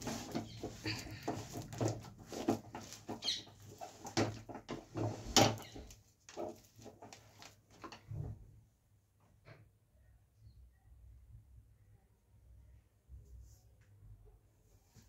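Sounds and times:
spoon stirring and scraping pan: 0:00.0 - 0:07.3.

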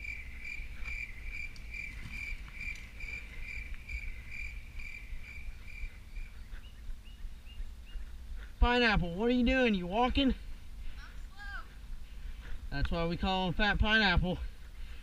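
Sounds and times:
insect chirping: 0:00.0 - 0:08.1.

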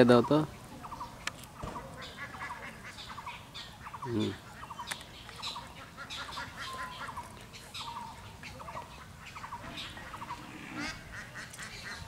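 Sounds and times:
birds chattering: 0:00.0 - 0:12.0
low steady background noise: 0:00.0 - 0:12.0.

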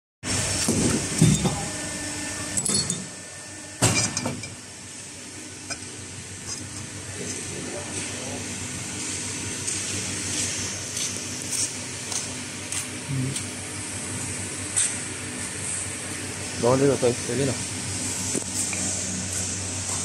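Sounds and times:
steady machine hum: 0:00.2 - 0:20.0.

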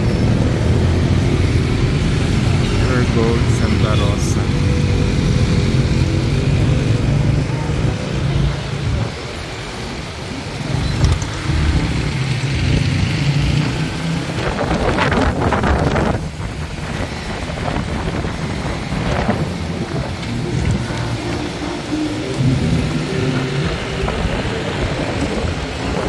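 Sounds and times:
wind buffeting on microphone: 0:10.6 - 0:26.0.

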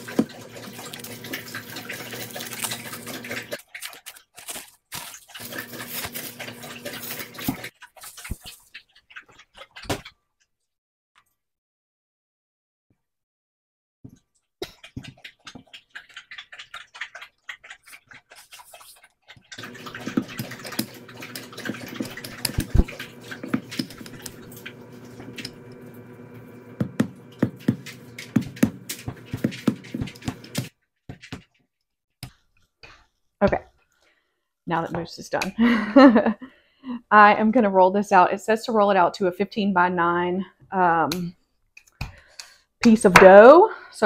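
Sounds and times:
dog lapping water: 0:00.0 - 0:04.4, 0:05.0 - 0:10.2, 0:14.6 - 0:31.4.

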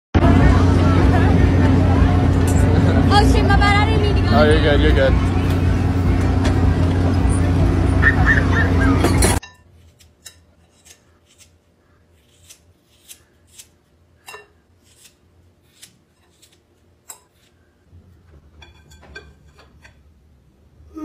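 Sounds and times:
scissors snipping hair: 0:09.9 - 0:11.5, 0:12.3 - 0:13.8, 0:14.8 - 0:17.3.

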